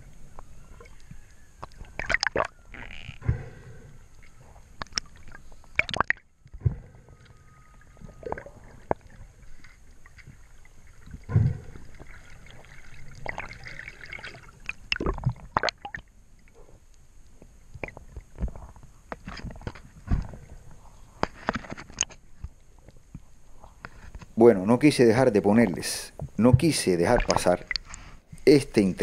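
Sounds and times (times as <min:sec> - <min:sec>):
gurgling bubbles: 0:01.8 - 0:03.8, 0:04.8 - 0:07.1, 0:07.9 - 0:09.4, 0:10.4 - 0:16.1
gear clicks and knocks underwater: 0:04.1 - 0:24.4, 0:26.2 - 0:28.2.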